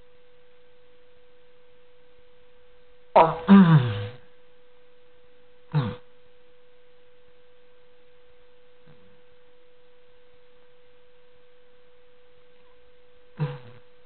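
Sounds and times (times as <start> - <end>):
steady hum: 0.0 - 14.0
faint throaty sound: 3.2 - 4.4, 5.7 - 6.2, 12.6 - 14.0.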